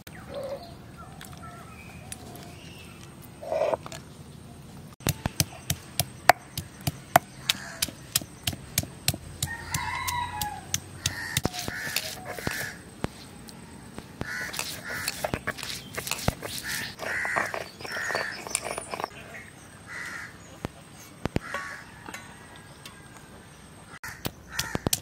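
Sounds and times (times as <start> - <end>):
chickens calling: 9.4 - 12.8, 13.9 - 19.2.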